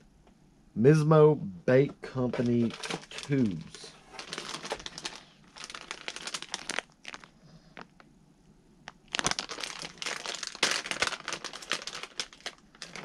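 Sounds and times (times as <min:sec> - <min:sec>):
plastic bag crinkling: 0:02.4 - 0:08.0, 0:08.9 - 0:13.0.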